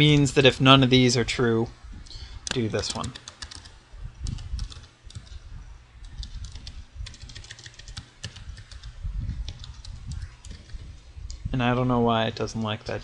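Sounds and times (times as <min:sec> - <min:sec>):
computer keyboard typing: 0:02.5 - 0:05.4, 0:06.0 - 0:11.0.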